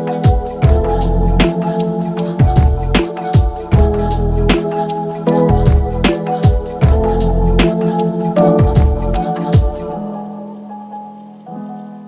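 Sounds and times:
electronic music: 0:00.0 - 0:12.0
held keyboard chords: 0:00.0 - 0:12.0
deep kick drums: 0:00.3 - 0:01.0, 0:02.4 - 0:04.1, 0:05.5 - 0:07.2, 0:08.6 - 0:09.8.

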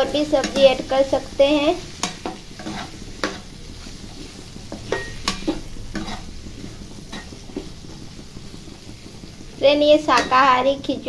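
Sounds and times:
vegetables sizzling in oil: 0:00.0 - 0:11.0
spoon clicking and scraping pan: 0:00.3 - 0:00.8, 0:01.9 - 0:03.5, 0:04.7 - 0:06.4, 0:07.1 - 0:07.7, 0:10.1 - 0:10.4.

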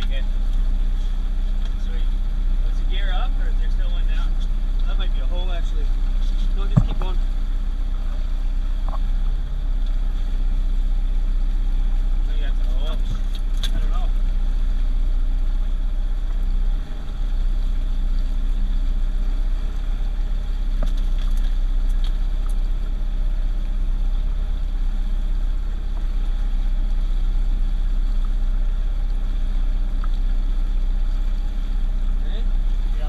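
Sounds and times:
outboard motor rumbling: 0:00.0 - 0:33.0.

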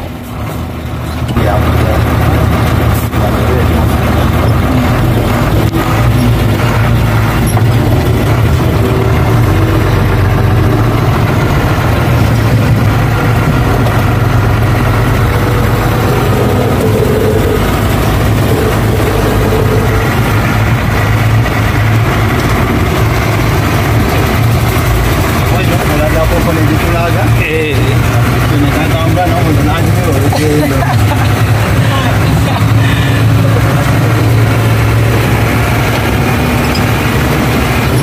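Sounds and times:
truck diesel engine running: 0:00.0 - 0:38.0.

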